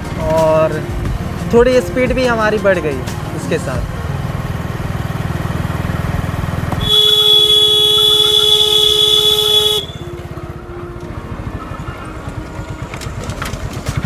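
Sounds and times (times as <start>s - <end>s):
vehicle engine rumble: 0.0s - 14.0s
two-pitch vehicle horn blast: 6.8s - 10.3s.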